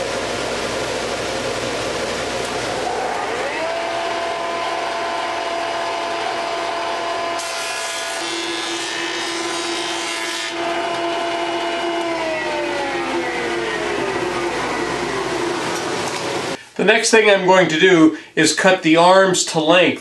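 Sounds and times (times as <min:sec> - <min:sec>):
jointer motor whining: 0:02.3 - 0:16.6.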